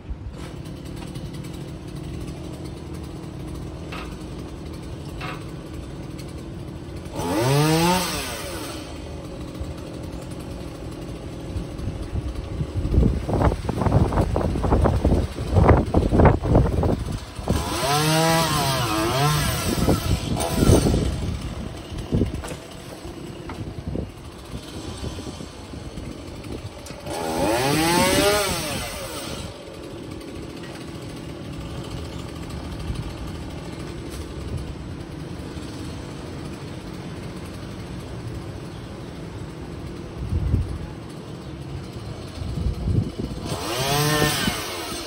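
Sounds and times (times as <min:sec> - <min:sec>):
chainsaw revving: 0:00.2 - 0:45.0
wind rumbling on microphone: 0:11.8 - 0:17.8, 0:42.4 - 0:43.6.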